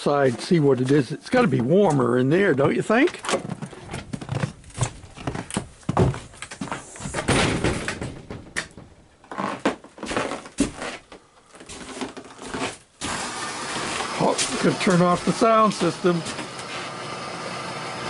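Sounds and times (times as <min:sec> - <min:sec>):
door knocks and rattles: 0:07.1 - 0:09.1
wooden door unlatching and opening: 0:07.1 - 0:09.1.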